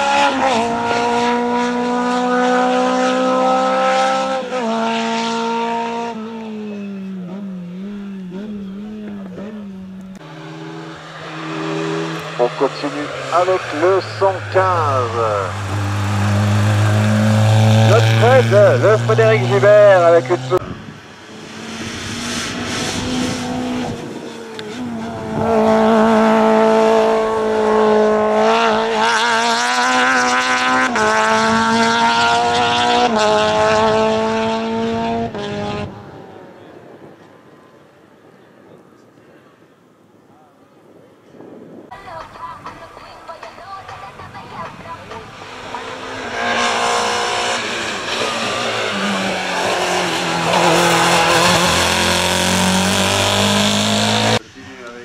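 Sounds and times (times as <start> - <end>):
race car engine at high revs: 0.0 - 37.0, 44.7 - 54.5.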